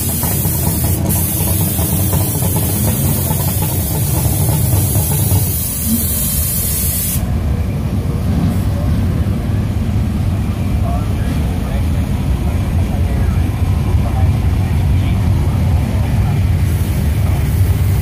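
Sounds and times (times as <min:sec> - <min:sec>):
jet engine hiss: 0:00.0 - 0:07.5
jet engine rumble: 0:00.0 - 0:18.0.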